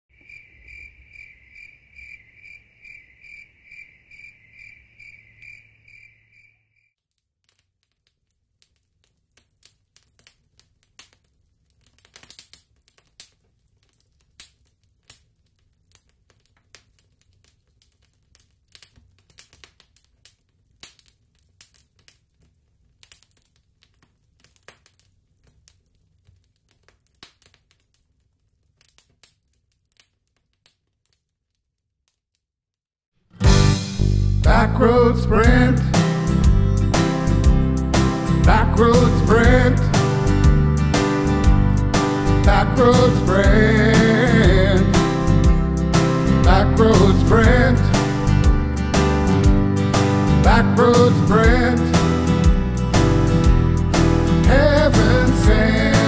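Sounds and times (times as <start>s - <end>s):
crickets chirping: 0.1s - 6.9s
campfire crackling and popping: 7.0s - 32.3s, 33.4s - 56.0s.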